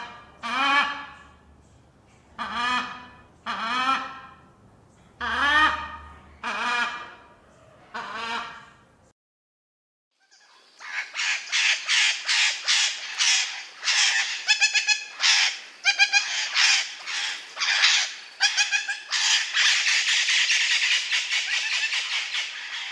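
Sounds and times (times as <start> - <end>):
parrot squawking: 10.2 - 22.9.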